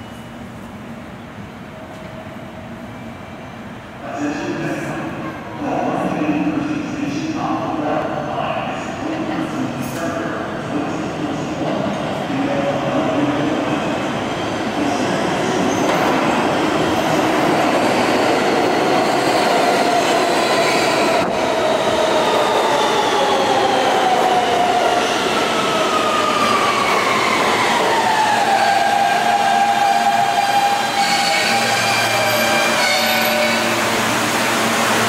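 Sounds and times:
train braking to a stop: 22.2s - 35.0s.

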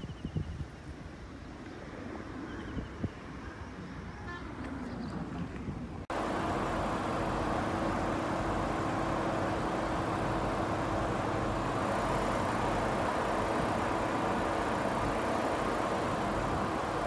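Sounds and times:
vehicle engine hum: 6.1s - 17.0s.

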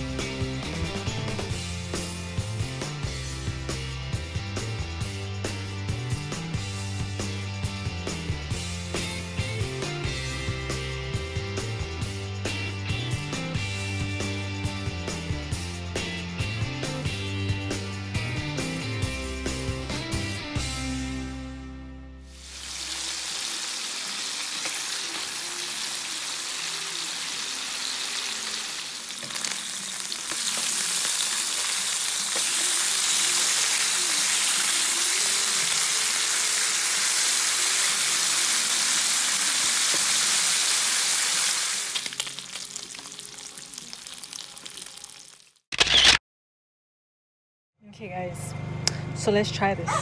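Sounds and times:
meat sizzling in oil: 22.3s - 45.6s.

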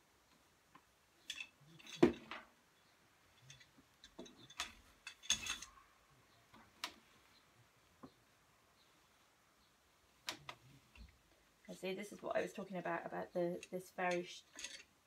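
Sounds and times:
wooden loom clicks and knocks: 3.4s - 5.7s.

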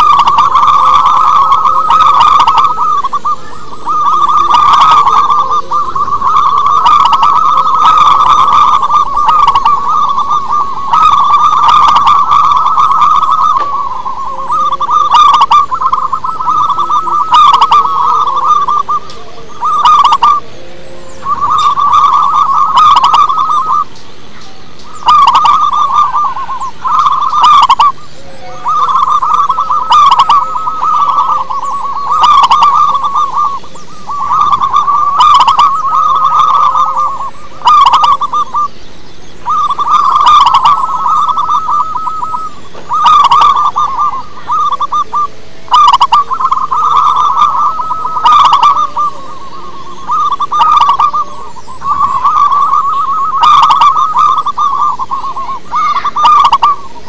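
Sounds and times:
dove cooing: 0.0s - 57.0s.

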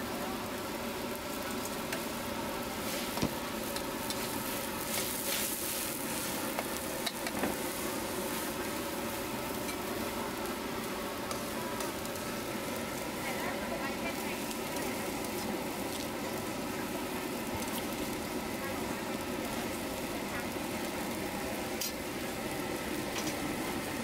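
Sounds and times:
hot oil sizzling in a wok: 0.0s - 24.0s.

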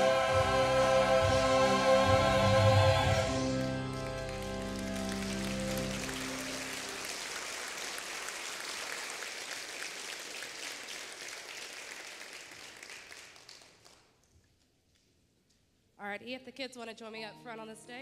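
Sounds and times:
crowd clapping: 3.4s - 14.2s.

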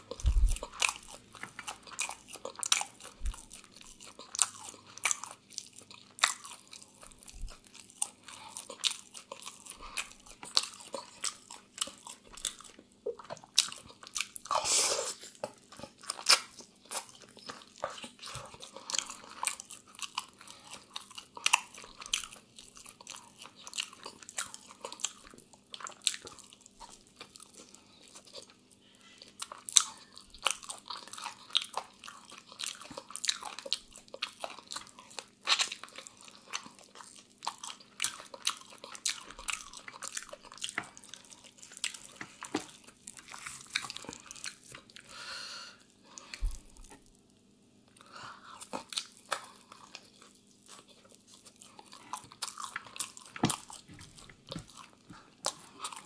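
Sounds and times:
wet chewing and biting: 0.0s - 14.6s, 15.2s - 45.1s, 48.0s - 56.0s.

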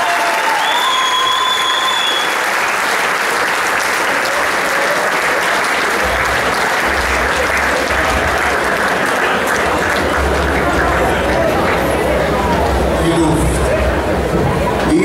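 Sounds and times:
audience applauding: 0.0s - 14.2s
low rumble: 6.0s - 14.8s.

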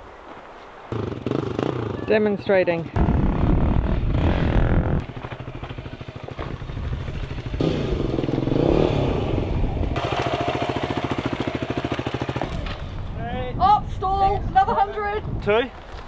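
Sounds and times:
dirt bike engine running: 1.0s - 13.0s.

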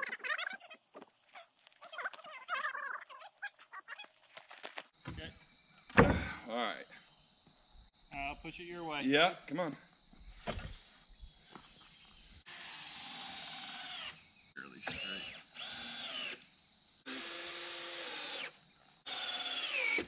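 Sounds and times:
cordless drill running: 12.5s - 14.2s, 14.9s - 16.4s, 17.1s - 18.5s, 19.1s - 20.0s.

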